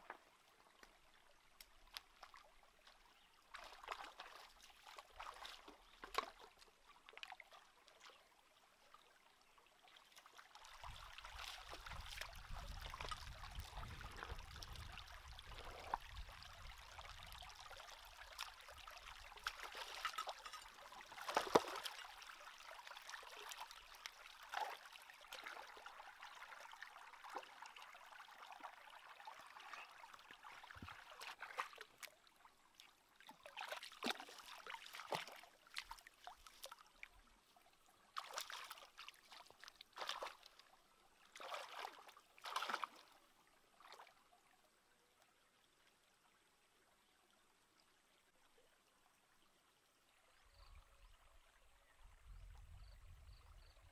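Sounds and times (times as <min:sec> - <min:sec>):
stream trickling over rocks: 0:00.0 - 0:53.9
rocks splashing and knocking in water: 0:03.5 - 0:07.4, 0:10.8 - 0:16.2, 0:19.2 - 0:22.2, 0:33.4 - 0:36.7, 0:39.4 - 0:40.5, 0:41.4 - 0:43.0.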